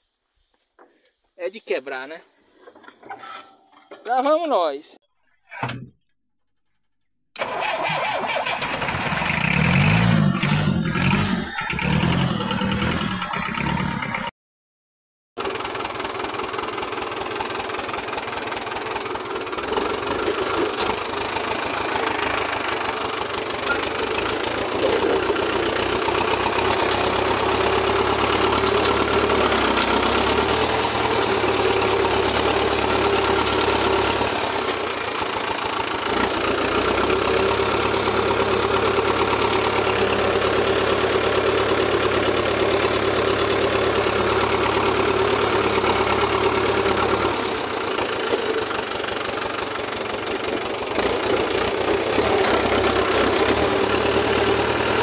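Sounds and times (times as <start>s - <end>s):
tractor diesel engine knocking: 15.4s - 55.0s
blade pushing through brush: 23.5s - 40.2s.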